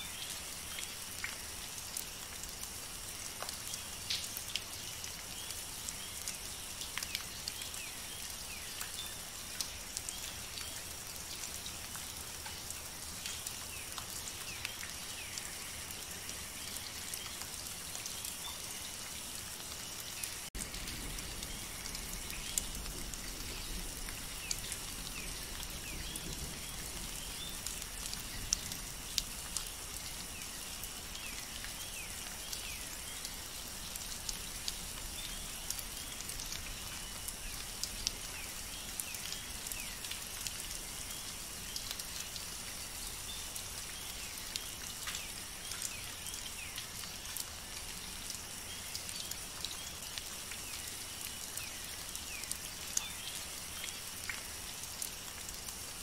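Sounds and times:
raindrops striking leaves: 0.0 - 56.0
steady rain hiss: 0.0 - 56.0.

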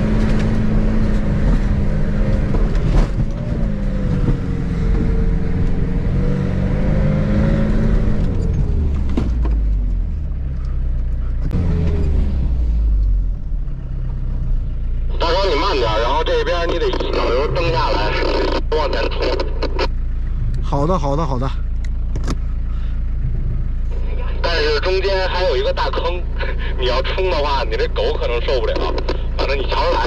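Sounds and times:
van engine pulling uphill: 0.0 - 30.0.

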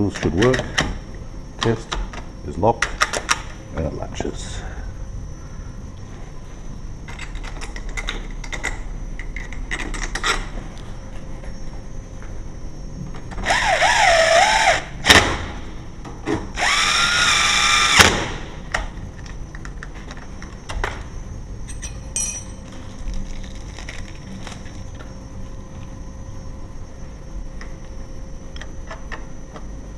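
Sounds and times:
cordless drill driving screws: 16.6 - 18.0.

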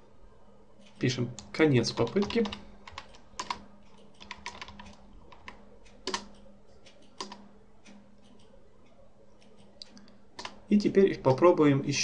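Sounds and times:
faint steady hum: 0.0 - 12.0
computer keyboard typing: 0.8 - 8.6, 9.4 - 10.7.

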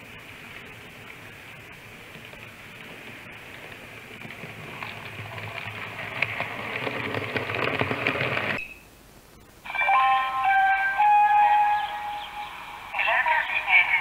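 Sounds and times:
model train wheels rumbling on rails: 0.0 - 8.7
rail joint clicks: 0.6 - 8.8.

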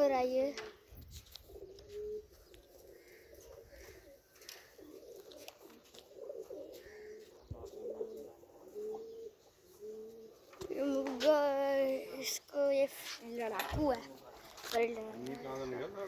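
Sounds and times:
pigeons cooing: 0.7 - 12.3.

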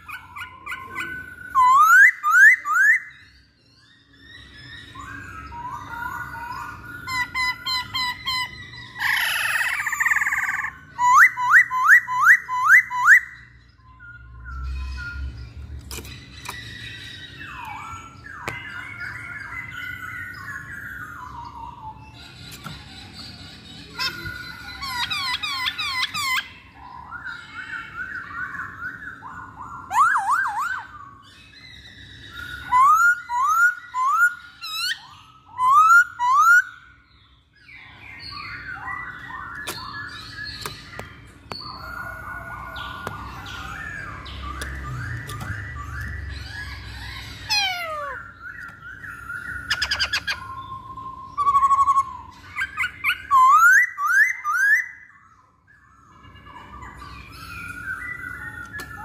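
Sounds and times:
bird chattering: 0.0 - 3.1, 4.4 - 13.4, 21.3 - 27.2, 38.3 - 55.0
bird singing whistled notes: 0.0 - 22.4, 23.8 - 59.0.

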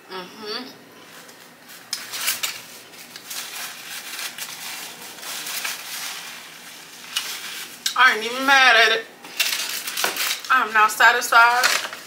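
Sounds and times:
paper crumpling: 1.1 - 7.9, 9.4 - 10.5.

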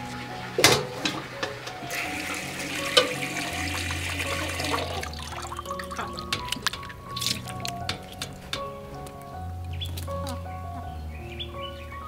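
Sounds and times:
tap water running into sink: 0.6 - 8.7.

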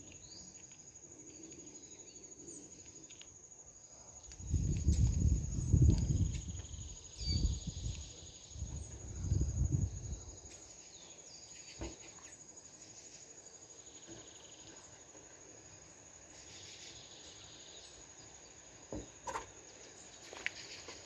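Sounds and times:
bird chirps: 6.6 - 9.0
insect trilling: 15.6 - 21.0.

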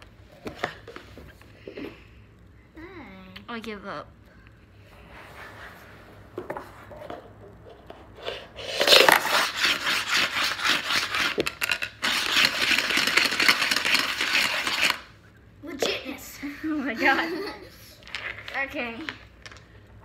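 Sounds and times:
dice rattling in plastic cup: 8.6 - 15.1.

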